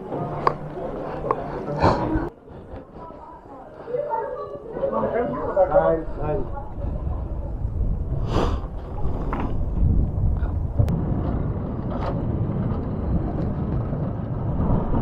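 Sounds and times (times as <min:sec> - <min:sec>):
sled wheels rumbling on rails: 0:05.6 - 0:15.0.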